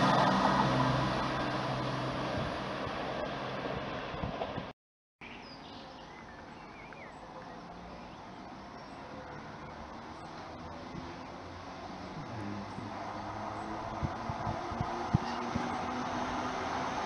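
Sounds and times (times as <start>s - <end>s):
train rumble: 0.0s - 4.7s
bird chirps: 5.2s - 10.3s.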